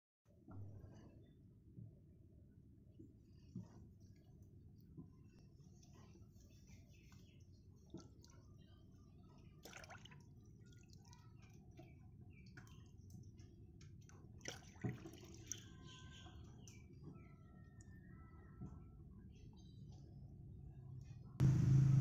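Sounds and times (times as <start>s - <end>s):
water pouring into plastic basin: 9.6s - 10.8s, 14.4s - 15.6s.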